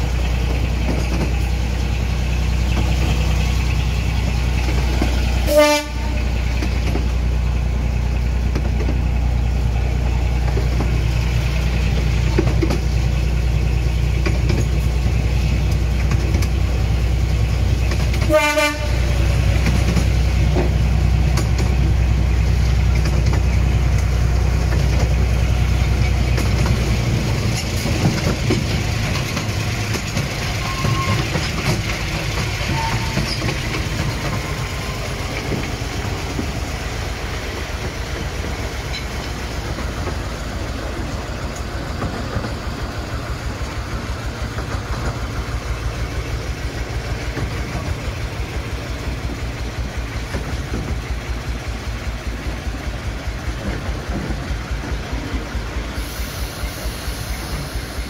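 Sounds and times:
carriages rattling on track: 0.0 - 58.0
diesel locomotive engine drone: 0.0 - 58.0
locomotive horn toots: 5.4 - 6.6, 18.2 - 19.5, 32.6 - 33.4.

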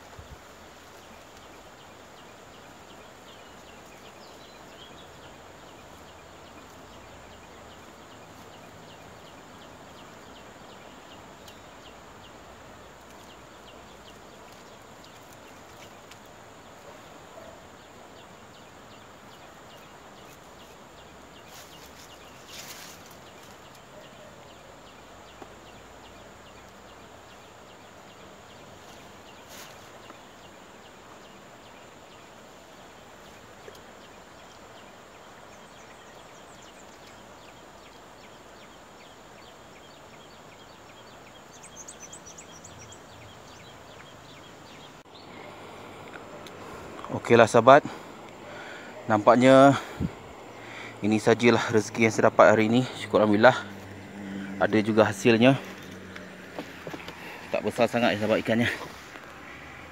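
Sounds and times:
steady hiss: 0.0 - 24.0, 24.9 - 59.9
brief rustling: 55.6 - 59.4.

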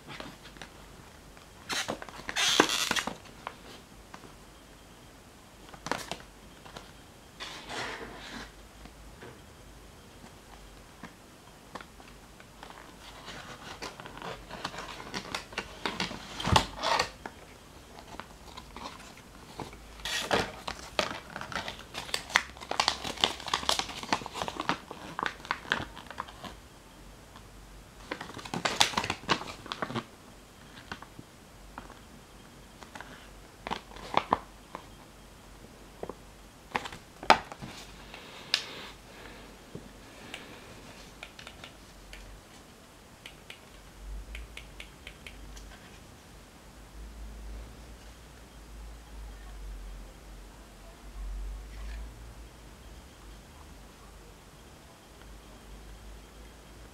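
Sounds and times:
plastic packaging crinkling: 18.0 - 26.6, 28.0 - 30.1.

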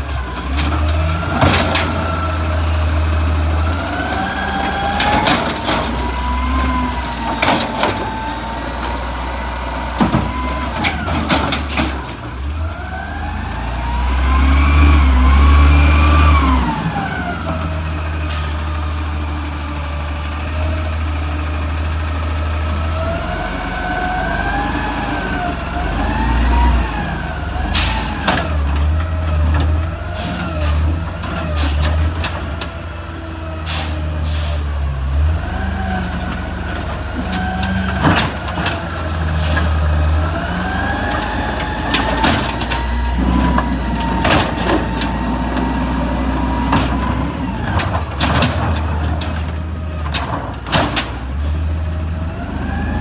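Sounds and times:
garbage truck engine rumbling: 0.0 - 53.0
metal arm and bin clanks: 46.6 - 51.4.

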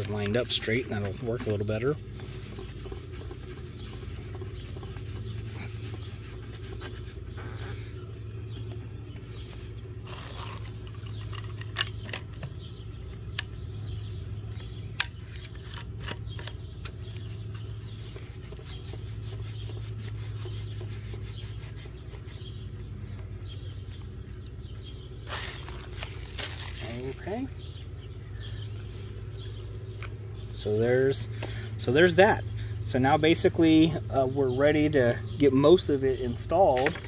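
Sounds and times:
plastic rubbing and scraping: 0.0 - 8.0, 9.2 - 12.5, 15.4 - 22.6
steady low hum: 0.0 - 37.0
sharp plastic clicks: 14.9 - 17.0.

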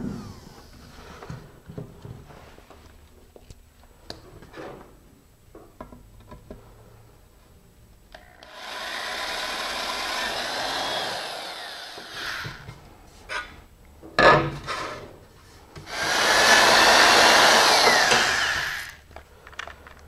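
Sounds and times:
electric drill boring: 8.4 - 12.6, 15.9 - 19.0.

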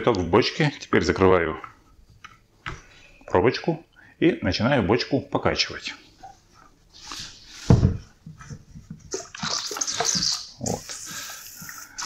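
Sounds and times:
steam hissing: 9.5 - 12.0.

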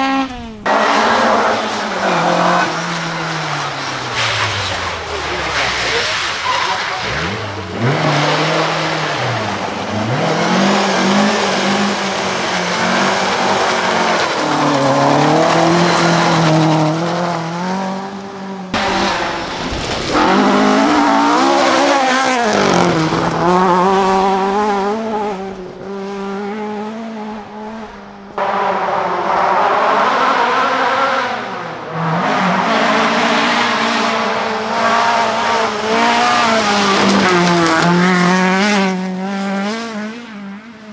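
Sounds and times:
rally car engines revving: 0.0 - 40.9.

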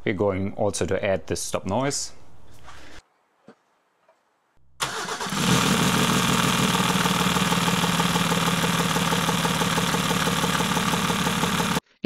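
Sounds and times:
diesel engine idling: 4.8 - 11.8.

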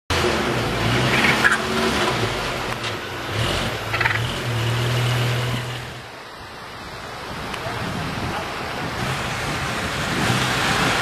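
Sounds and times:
turkey calls: 3.9 - 4.2.

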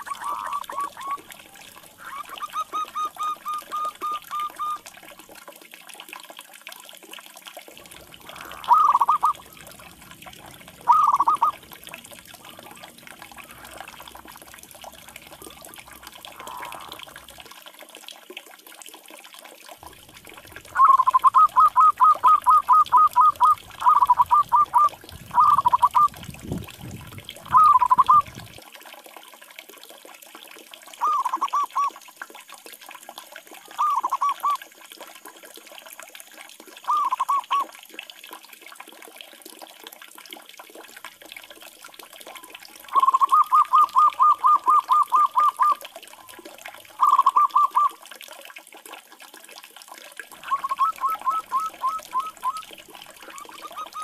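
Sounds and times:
dove cooing: 0.0 - 4.8, 8.2 - 9.9, 10.6 - 11.7, 15.4 - 17.2, 20.7 - 26.2, 27.5 - 28.5, 31.0 - 31.9, 33.8 - 34.6, 36.9 - 37.6, 42.9 - 45.8, 47.0 - 48.0, 50.4 - 54.0.

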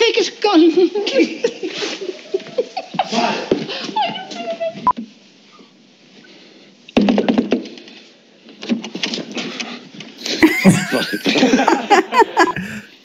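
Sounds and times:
people laughing: 1.1 - 4.6, 10.2 - 13.0
voices: 10.4 - 12.9.

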